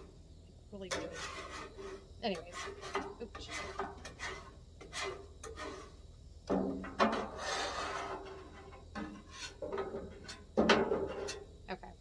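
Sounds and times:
scraper rasping on steel griddle: 0:00.9 - 0:06.0, 0:07.0 - 0:10.4.

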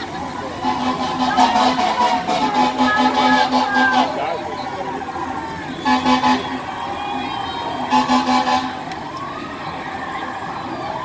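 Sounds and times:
fire truck horn blasts: 0:00.5 - 0:09.0.

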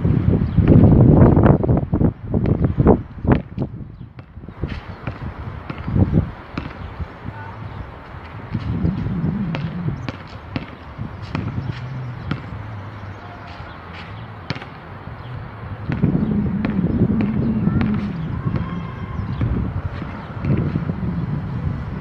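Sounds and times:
basketball bouncing: 0:03.4 - 0:06.9, 0:08.5 - 0:13.4, 0:14.0 - 0:14.8, 0:15.8 - 0:20.8
low rumble: 0:08.4 - 0:10.3, 0:15.2 - 0:22.0.

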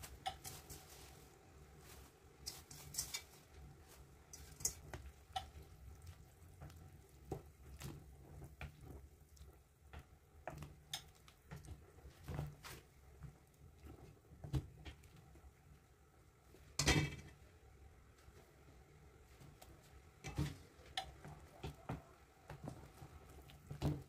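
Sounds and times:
spatula tapping pot: 0:00.0 - 0:00.8, 0:04.3 - 0:12.4.

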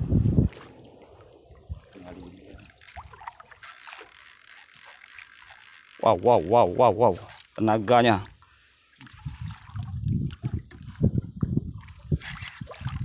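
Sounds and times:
fishing reel drag clicking: 0:02.7 - 0:07.6, 0:12.4 - 0:13.0.

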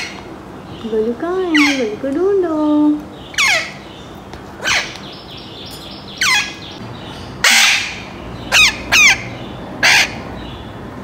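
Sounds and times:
parakeet calling loudly: 0:01.5 - 0:02.0, 0:03.1 - 0:10.6.

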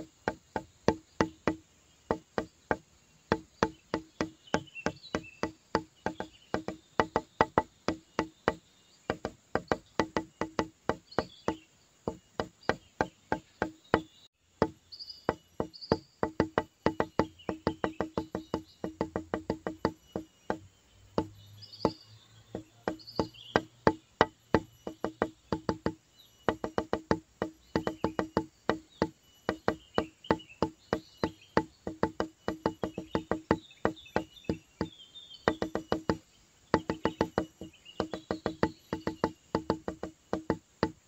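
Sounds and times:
insect chirping: 0:00.0 - 0:41.0.

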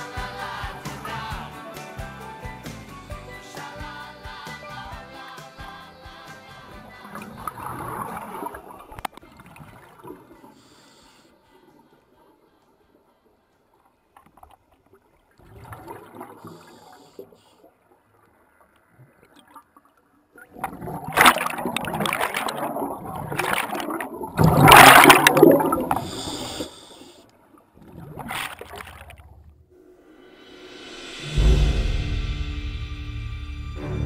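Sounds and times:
diver breathing through regulator: 0:10.5 - 0:12.0, 0:25.6 - 0:27.3
rush of exhaled bubbles: 0:15.4 - 0:17.0, 0:20.5 - 0:26.8, 0:27.8 - 0:29.6.

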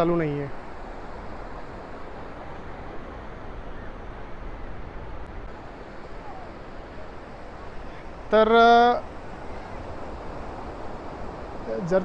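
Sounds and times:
surf breaking on beach: 0:00.0 - 0:12.0
wind rumble on microphone: 0:00.0 - 0:12.0.

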